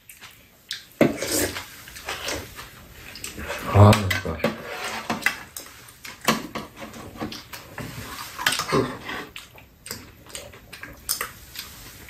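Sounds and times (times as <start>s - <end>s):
wet chewing: 0.0s - 3.6s, 8.4s - 12.0s.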